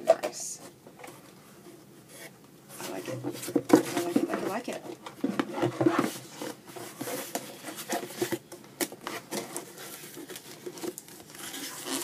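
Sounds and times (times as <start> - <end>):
packaging rustling: 5.4 - 12.0.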